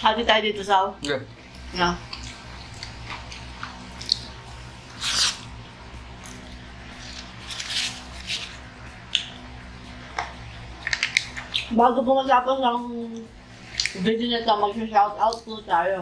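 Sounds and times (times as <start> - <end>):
wet chewing: 1.0 - 5.5, 10.8 - 11.7, 13.6 - 14.0
lip smacking: 2.0 - 4.4, 9.0 - 9.4, 10.9 - 11.7, 13.6 - 14.0.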